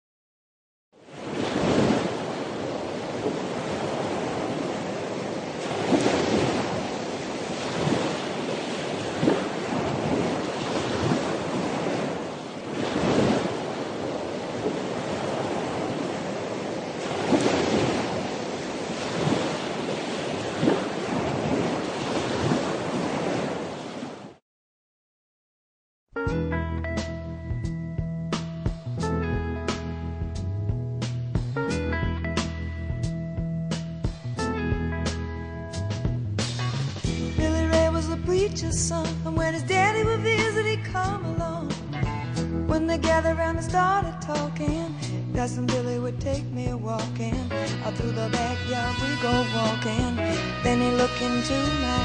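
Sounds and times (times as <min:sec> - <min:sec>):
sea surf waves: 0:01.0 - 0:24.4.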